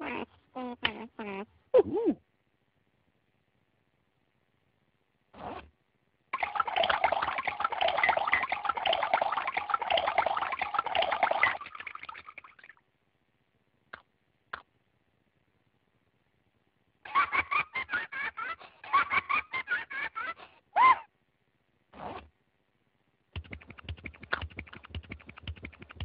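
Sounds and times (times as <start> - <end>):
liquid pouring into a cup: 6.4 - 12.7.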